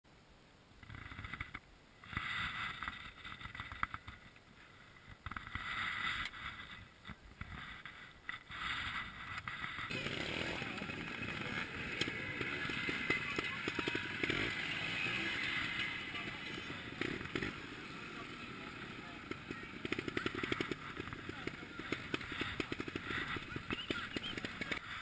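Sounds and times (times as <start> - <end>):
motorcycle engines revving: 5.2 - 25.0.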